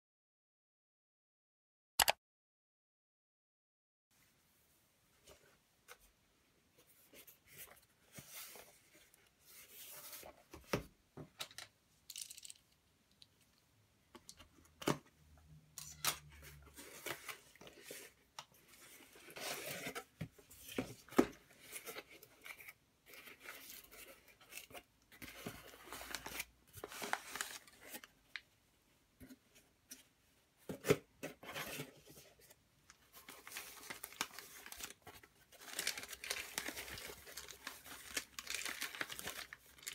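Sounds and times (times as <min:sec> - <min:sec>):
sharp clicks: 0:02.0 - 0:02.2
foam packing wrap rustling: 0:33.3 - 0:39.9.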